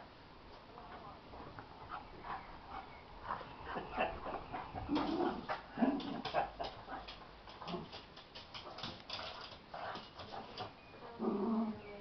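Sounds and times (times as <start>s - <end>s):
scuffling clicks of dogs: 4.2s - 10.8s
dogs growling whines: 11.2s - 11.8s.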